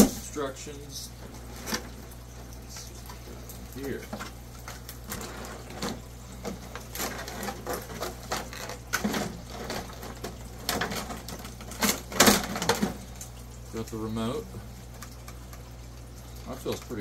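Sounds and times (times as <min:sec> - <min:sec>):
plastic trays crackling: 0:02.7 - 0:13.4.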